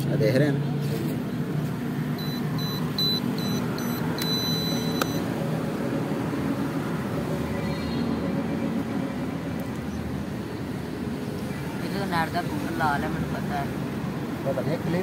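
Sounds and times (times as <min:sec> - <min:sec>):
short high electronic beeps: 0:02.2 - 0:05.2.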